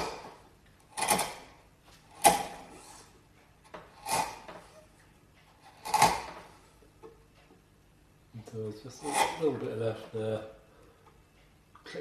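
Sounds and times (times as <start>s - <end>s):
chisel cutting through wood: 0.9s - 1.5s, 3.8s - 4.6s, 5.6s - 6.4s, 9.0s - 9.6s.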